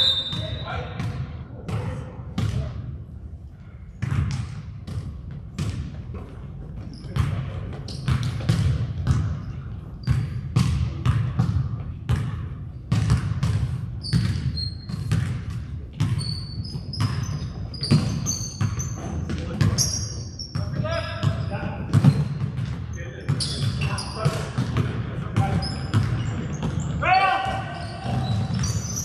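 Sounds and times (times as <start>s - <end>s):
basketball bouncing on hardwood: 7.2s - 9.4s, 10.0s - 19.8s, 21.2s - 23.4s, 24.2s - 26.9s.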